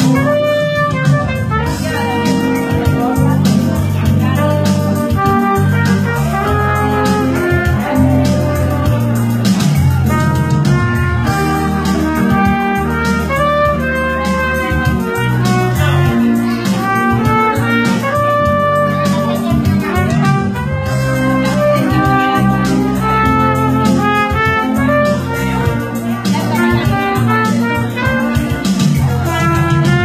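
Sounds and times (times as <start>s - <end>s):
electronic keyboard accompaniment: 0.0s - 30.0s
trumpet melody: 0.0s - 30.0s.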